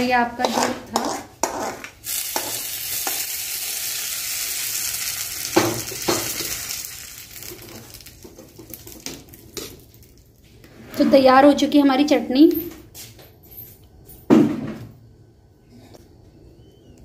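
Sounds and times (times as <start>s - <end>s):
hot oil sizzling: 1.4s - 10.5s.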